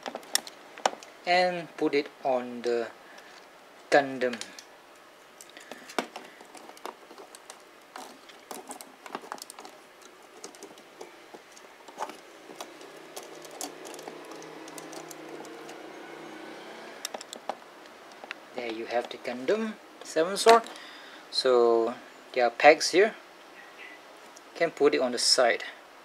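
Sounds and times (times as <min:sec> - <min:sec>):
plastic parts clicking and tapping: 0:00.0 - 0:01.1, 0:05.4 - 0:16.2, 0:17.0 - 0:18.4
faint steady hum: 0:00.0 - 0:26.0.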